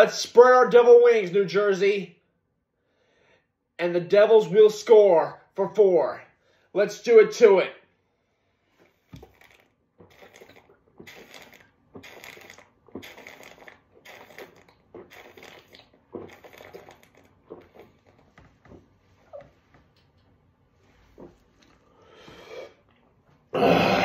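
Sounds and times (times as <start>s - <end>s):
man gulping beer: 8.8s - 20.2s, 21.0s - 24.0s.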